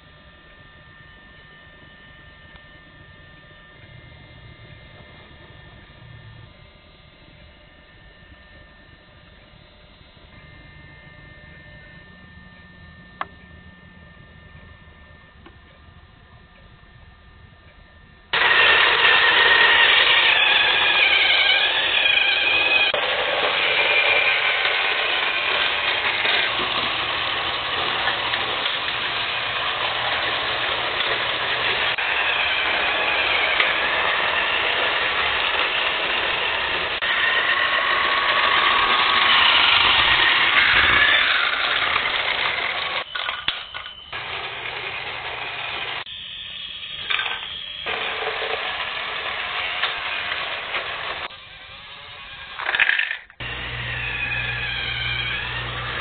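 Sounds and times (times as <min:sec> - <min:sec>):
motor whine: 0:00.0 - 0:56.0
toy motors whirring: 0:18.3 - 0:56.0.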